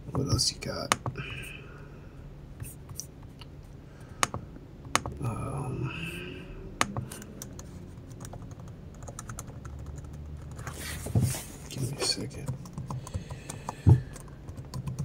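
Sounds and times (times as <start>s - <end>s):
low steady hum: 0.0s - 15.0s
keyboard typing clicks: 4.2s - 5.2s, 6.8s - 10.6s.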